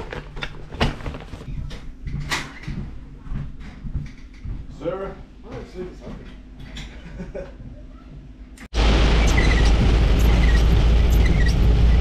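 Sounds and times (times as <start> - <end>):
tyre and road noise: 8.7 - 12.0
heavy rain on car windscreen: 8.8 - 12.0.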